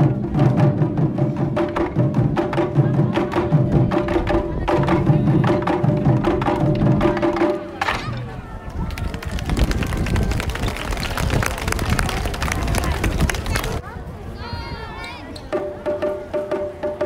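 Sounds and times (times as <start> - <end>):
taiko drums beating: 0.0 - 8.3, 15.5 - 17.0.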